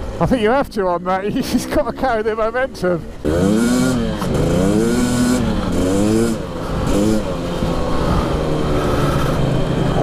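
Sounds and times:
two-stroke engine revving: 0:03.2 - 0:10.0.

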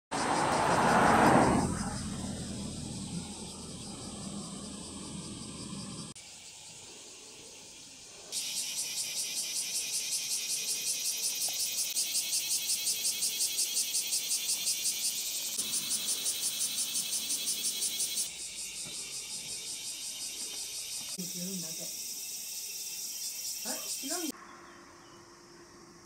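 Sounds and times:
cicadas buzzing: 0:00.2 - 0:26.0.

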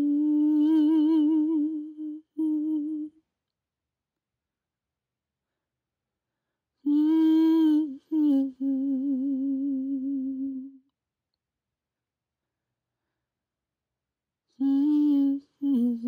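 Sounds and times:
woman humming a wordless tune: 0:00.0 - 0:03.2, 0:06.8 - 0:10.8, 0:14.6 - 0:16.0.

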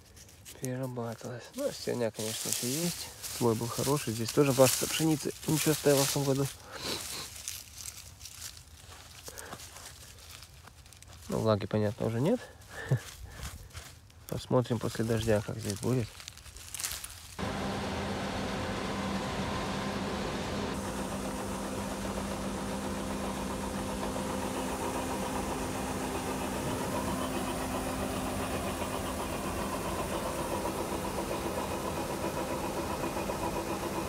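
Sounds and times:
engine humming: 0:14.9 - 0:34.0.

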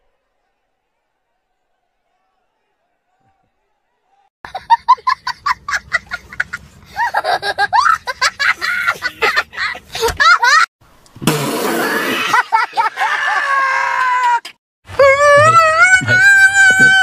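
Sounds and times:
boy laughing: 0:04.5 - 0:10.7, 0:11.9 - 0:14.4
high voice wavering in pitch: 0:14.9 - 0:17.0.

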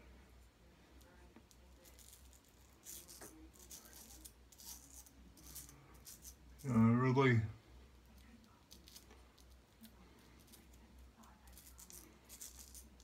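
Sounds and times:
razor scraping stubble: 0:01.6 - 0:07.3, 0:08.2 - 0:13.0.

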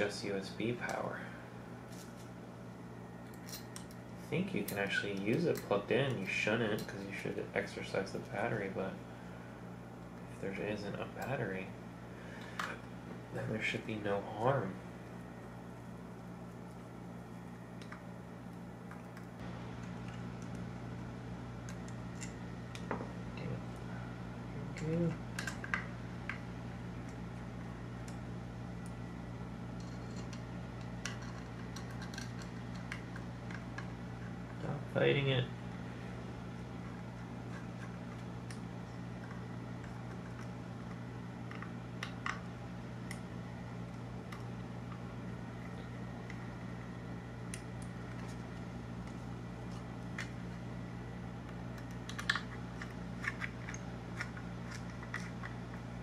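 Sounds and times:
low electrical hum: 0:00.0 - 0:56.0
small screws clicking and tapping: 0:29.8 - 0:33.9.

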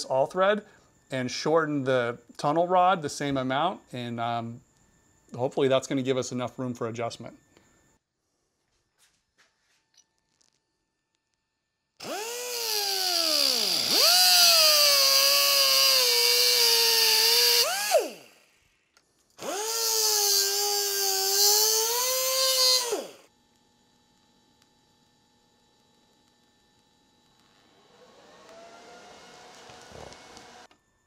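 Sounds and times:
cut-off tool whining: 0:12.0 - 0:23.3, 0:27.2 - 0:30.9.

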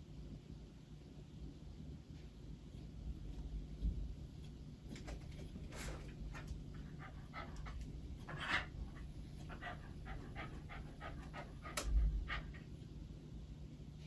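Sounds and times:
dog panting: 0:05.7 - 0:12.8.

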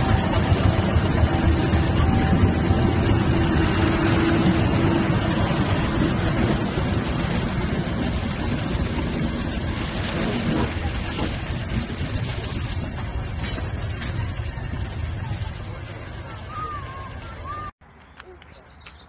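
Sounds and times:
diesel locomotive engine running: 0:00.0 - 0:19.0.

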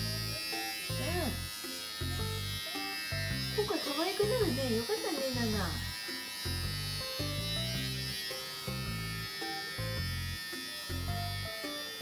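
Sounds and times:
background music: 0:00.0 - 0:12.0
electric hair clippers buzzing: 0:00.0 - 0:12.0.

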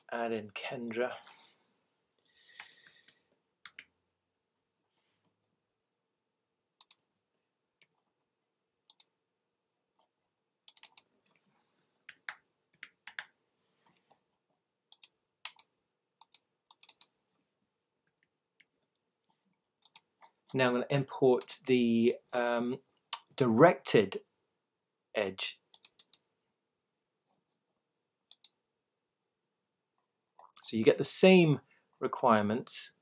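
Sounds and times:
mouse clicks: 0:06.8 - 0:07.0, 0:14.9 - 0:17.1, 0:28.3 - 0:28.6.

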